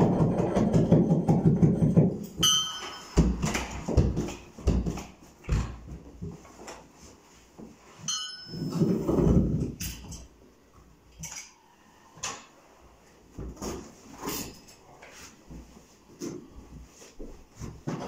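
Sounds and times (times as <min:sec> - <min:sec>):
tools knocking and scraping carpet: 0:00.0 - 0:10.3, 0:13.3 - 0:18.0
brief high ring: 0:02.4 - 0:03.2.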